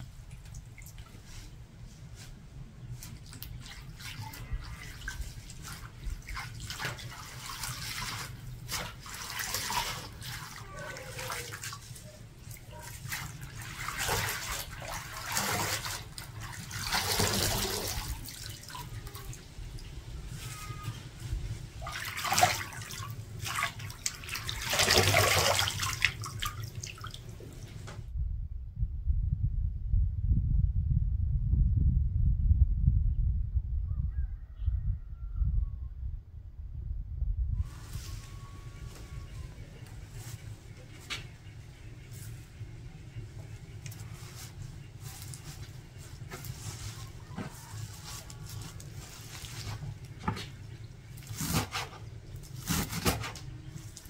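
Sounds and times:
water splashing and running: 3.1 - 19.9, 21.8 - 27.6
water drips: 21.8 - 27.8
low steady rumble: 26.0 - 54.0.

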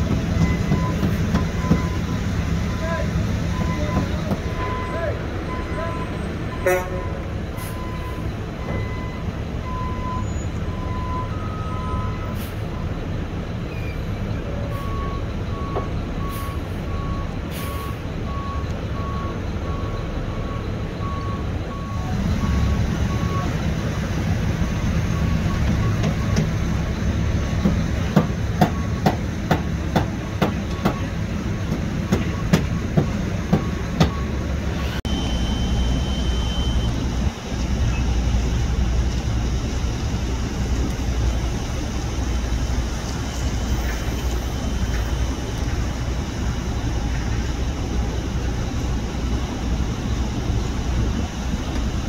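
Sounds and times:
heavy machinery engine rumble: 0.0 - 52.0.

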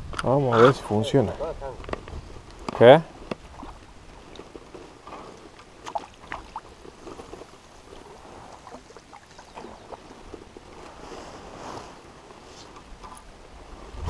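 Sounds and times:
river water gurgling: 3.2 - 14.0
small splashes: 5.3 - 10.6.

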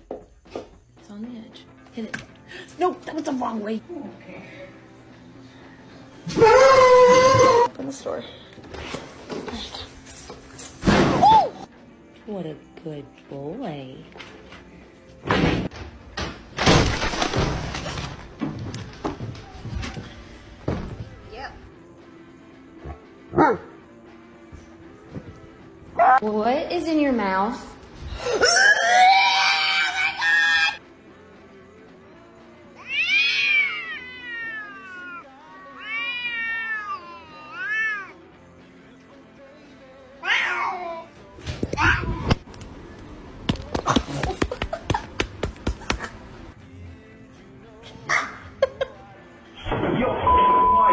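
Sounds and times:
cat crying loudly: 6.3 - 7.7, 32.8 - 38.2, 40.2 - 41.1
cats yowling: 6.3 - 7.7, 32.8 - 38.2, 40.2 - 41.1.

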